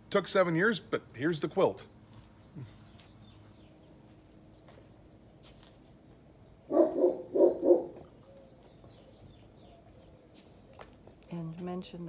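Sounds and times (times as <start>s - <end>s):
dog barking: 6.7s - 8.0s.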